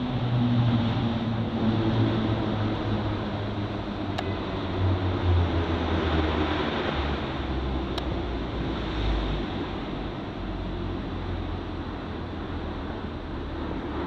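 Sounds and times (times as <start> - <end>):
train gliding with air rush: 0.0 - 14.0.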